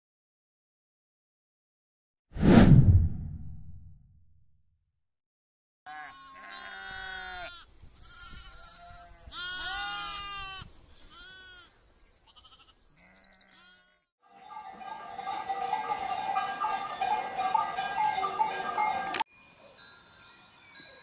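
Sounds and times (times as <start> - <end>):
sheep and lambs bleating: 5.9 - 14.1.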